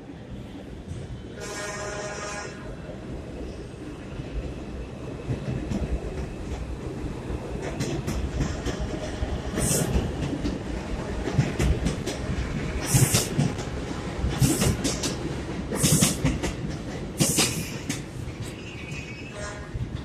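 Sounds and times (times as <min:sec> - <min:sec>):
subway train rumbling: 0:00.0 - 0:20.0.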